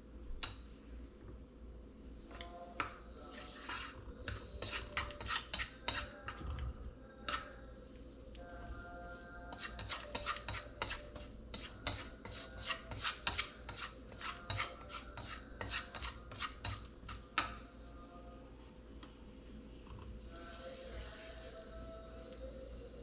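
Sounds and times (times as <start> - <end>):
chopsticks scraping a wok: 2.8 - 6.4, 7.3 - 7.6, 9.5 - 17.5.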